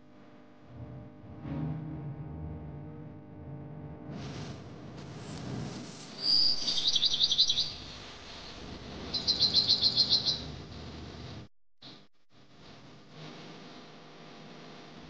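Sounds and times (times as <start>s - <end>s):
bird chirping trills: 6.2s - 7.9s, 9.1s - 10.4s.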